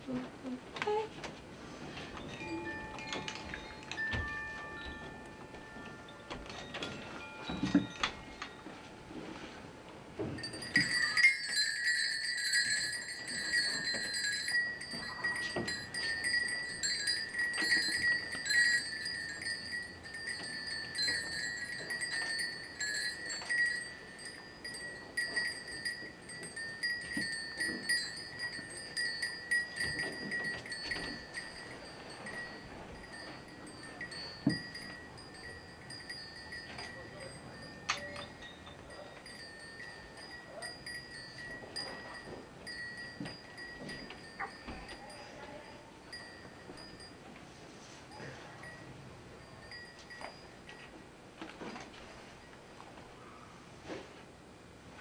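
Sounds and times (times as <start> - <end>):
bell jingling: 2.2 - 8.6, 10.4 - 47.2, 48.6 - 50.6
metal bell ringing: 2.3 - 8.6, 10.4 - 47.2, 48.6 - 50.6.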